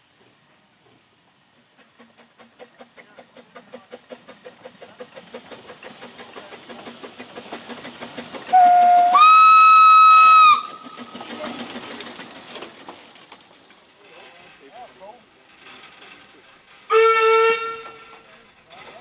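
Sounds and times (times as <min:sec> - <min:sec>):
steam locomotive exhaust beats: 0:00.0 - 0:19.0
shrill steam whistle: 0:08.5 - 0:10.8, 0:16.9 - 0:18.2.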